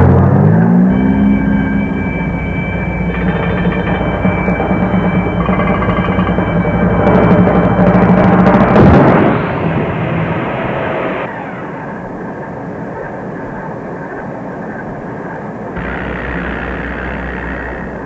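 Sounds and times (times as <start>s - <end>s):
loud sudden hit: 0.0s - 11.3s
low hum: 0.0s - 13.2s, 15.8s - 18.0s
steady rushing noise: 0.0s - 18.0s.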